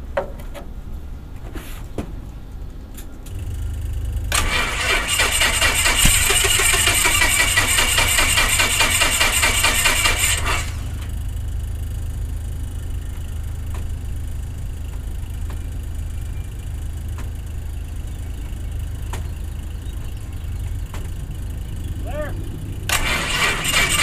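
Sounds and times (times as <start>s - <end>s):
steady low rumble: 2.2s - 8.5s, 10.4s - 24.0s
aircraft engine cranking: 3.3s - 11.5s, 13.6s - 24.0s.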